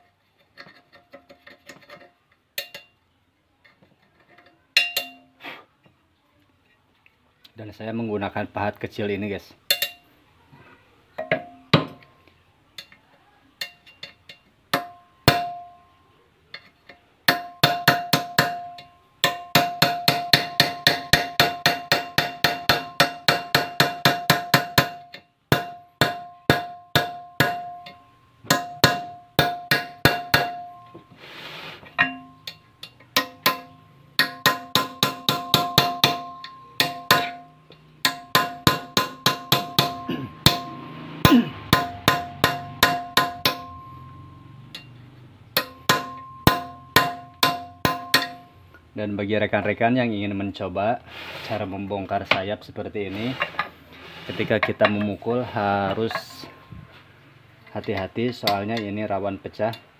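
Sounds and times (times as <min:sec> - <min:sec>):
hammer tapping chisel on steel: 0:04.8 - 0:05.3, 0:16.6 - 0:31.1, 0:32.0 - 0:44.1, 0:45.6 - 0:48.5.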